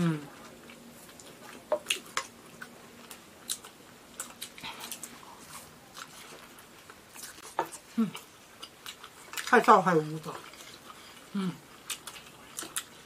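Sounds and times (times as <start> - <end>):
biting and chewing food: 0.4 - 13.0.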